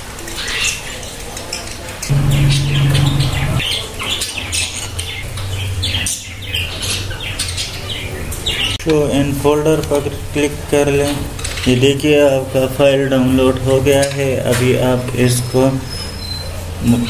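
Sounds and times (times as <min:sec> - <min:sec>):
low steady drone: 0:02.1 - 0:03.6
birds chirping: 0:02.1 - 0:04.2.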